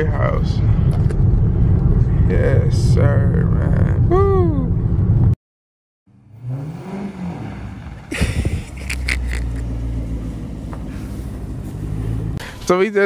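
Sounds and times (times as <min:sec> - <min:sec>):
low engine rumble: 0:00.0 - 0:05.4, 0:06.1 - 0:13.0
car engine revving: 0:06.1 - 0:12.6.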